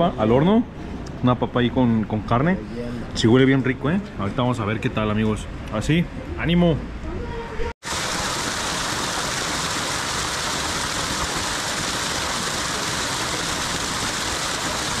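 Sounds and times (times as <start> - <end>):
river water rushing: 7.8 - 15.0.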